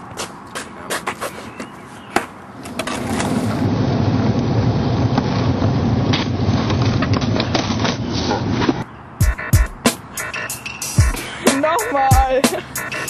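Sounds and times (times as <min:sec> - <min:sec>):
skateboard wheels rolling: 0:00.1 - 0:08.9.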